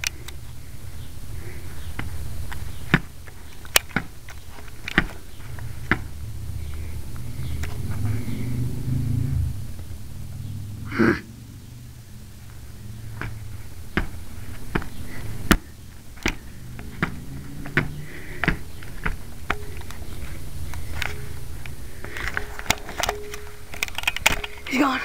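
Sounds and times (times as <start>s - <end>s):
sharp clicks and knocks: 1.9s - 6.1s, 13.2s - 24.7s
low rumble: 5.2s - 22.6s.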